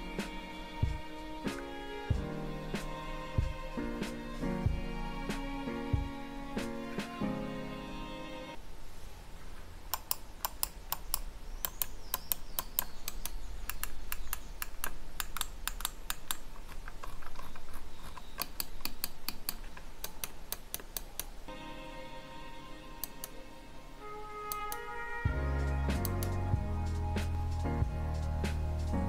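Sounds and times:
mouse buttons clicking: 9.9s - 21.4s, 23.0s - 23.4s, 24.5s - 24.9s, 25.9s - 26.4s.

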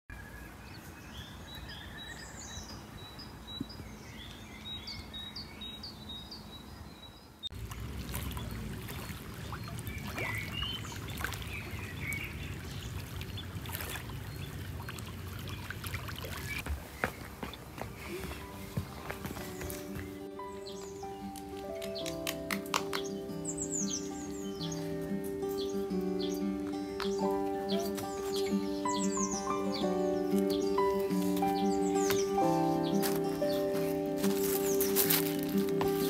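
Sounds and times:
birds calling: 0.1s - 36.0s
waves lapping against stones: 7.6s - 16.6s.

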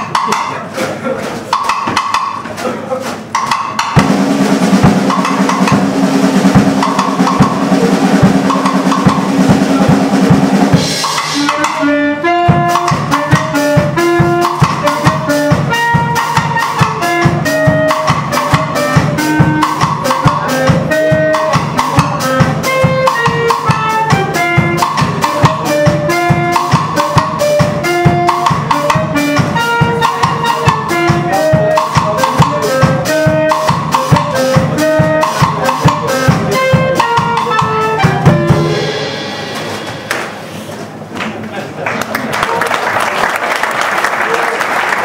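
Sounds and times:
fast drum kit beat: 0.0s - 40.6s
clarinet melody: 6.5s - 39.2s.

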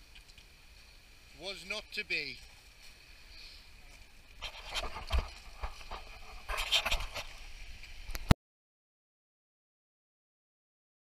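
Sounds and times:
wind gusting on microphone: 4.4s - 7.3s.

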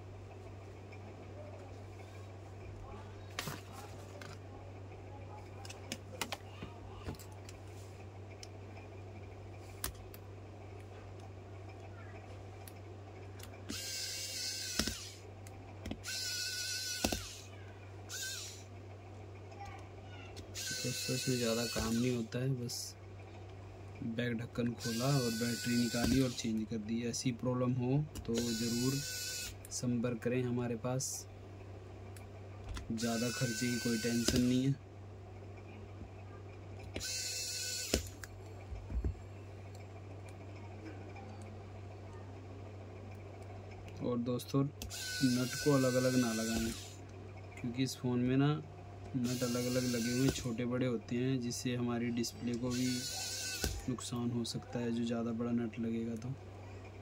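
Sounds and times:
steady low hum: 0.0s - 57.0s
electric screwdriver motor whining: 13.7s - 15.2s, 16.0s - 17.5s, 18.1s - 18.6s, 20.6s - 22.2s, 24.8s - 26.5s, 28.3s - 29.6s, 33.0s - 34.6s, 37.0s - 38.2s, 44.8s - 47.0s, 49.2s - 50.6s, 52.7s - 53.9s
smartphone handling clicks: 34.2s - 34.5s.

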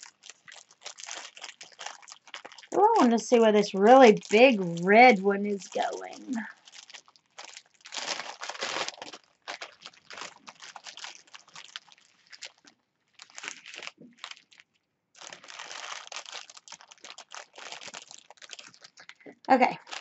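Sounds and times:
plastic packaging crinkling: 0.0s - 20.0s.

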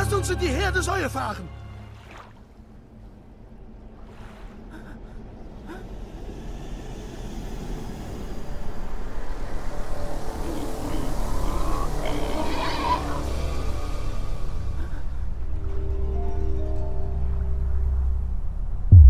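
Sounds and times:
rushing wind and sea: 1.8s - 15.6s.

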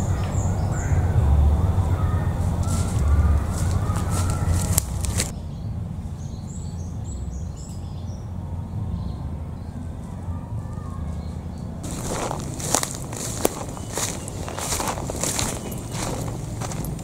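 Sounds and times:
faint high bird chirps: 0.0s - 12.3s, 13.2s - 16.9s
steady low rumble: 0.0s - 17.0s
footsteps crunching on leaves: 2.0s - 5.3s, 10.0s - 17.0s.

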